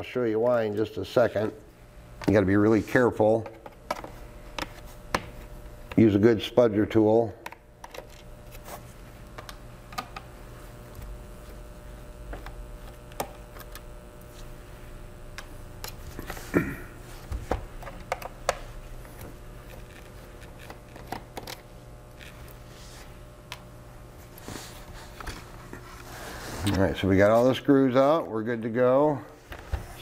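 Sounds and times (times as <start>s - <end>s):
steady low hum: 0.0s - 30.0s
screwdriver clicks and taps: 12.4s - 13.8s, 17.8s - 18.6s.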